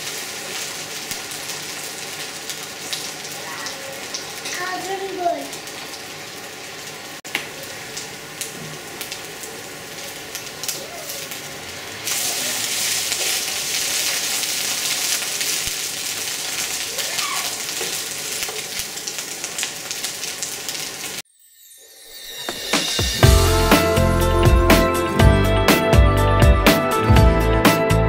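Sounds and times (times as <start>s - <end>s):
batter sizzling in a pan: 0.0s - 21.2s.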